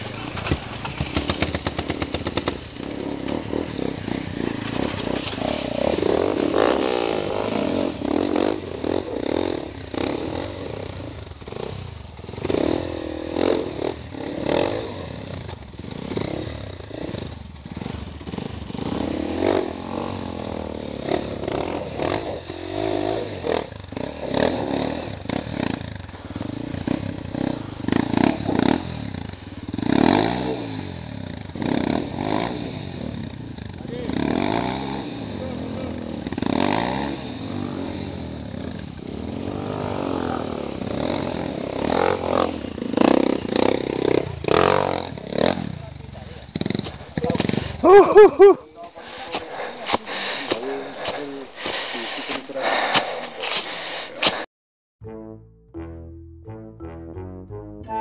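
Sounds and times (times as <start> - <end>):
bike clattering over bumps: 0.0 - 6.6, 46.4 - 47.8
dirt bike engine revving: 0.0 - 54.5.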